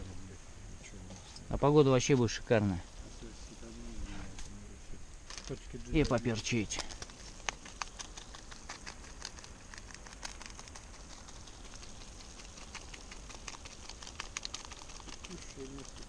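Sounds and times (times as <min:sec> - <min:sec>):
crackles and pops: 0:04.2 - 0:16.0.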